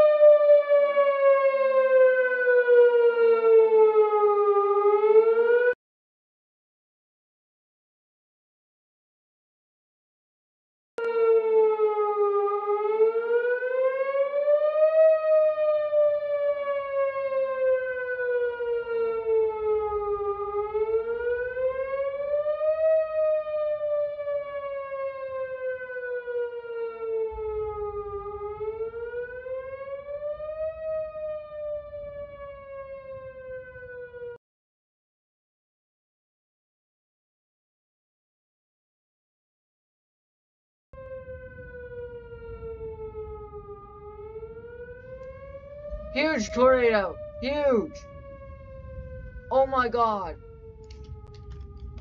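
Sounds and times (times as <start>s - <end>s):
warning siren wailing: 0.0s - 5.8s, 11.0s - 34.4s, 41.0s - 52.0s.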